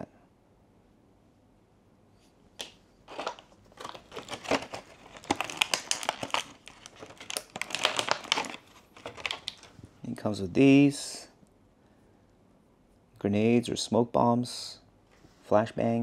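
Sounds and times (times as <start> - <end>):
plastic packaging crinkling: 2.6 - 9.9.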